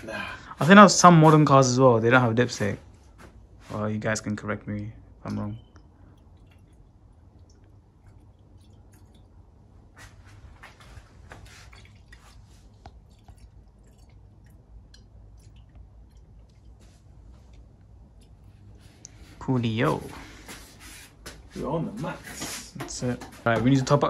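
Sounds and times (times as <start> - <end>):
liquid trickling into tank: 5.1 - 19.6.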